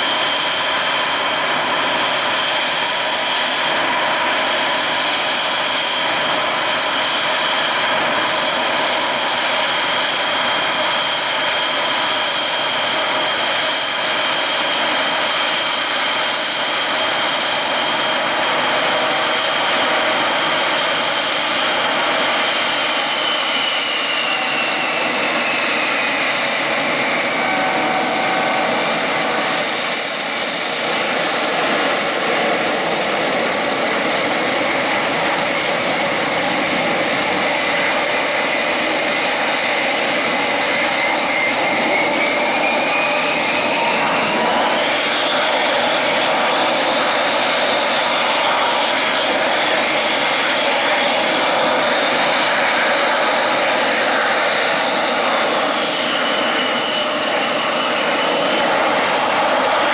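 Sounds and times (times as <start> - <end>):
jet engines rushing and whining: 0.0 - 59.9.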